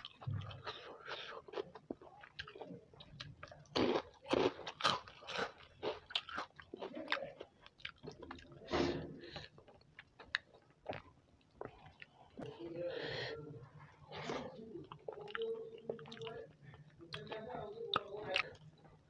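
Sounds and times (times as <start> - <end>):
crunching crisp food: 0.0 - 8.6.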